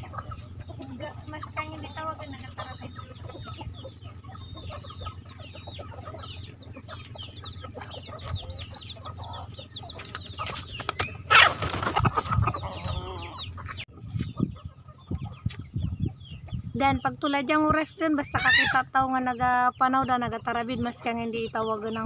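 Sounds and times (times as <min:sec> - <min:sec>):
hens clucking and calling: 0:00.0 - 0:16.7, 0:17.5 - 0:19.2
loud harsh chicken call: 0:11.2 - 0:13.7, 0:18.4 - 0:18.8.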